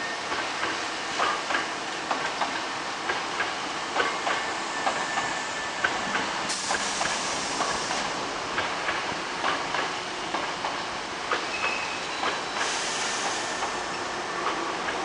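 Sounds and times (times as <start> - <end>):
train wheels clacking over rail joints: 0.3 - 15.0
air hiss: 6.5 - 8.1, 12.6 - 13.8.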